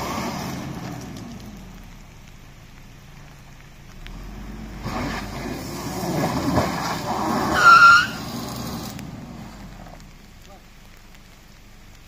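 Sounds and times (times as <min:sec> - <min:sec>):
engine revving under load: 0:00.0 - 0:02.1, 0:03.3 - 0:10.1
rough tyre noise: 0:00.0 - 0:12.0.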